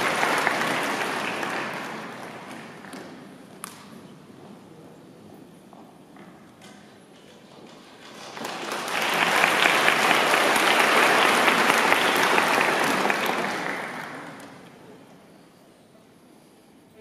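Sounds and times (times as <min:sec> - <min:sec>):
audience applauding: 0:00.0 - 0:03.2, 0:07.9 - 0:14.8.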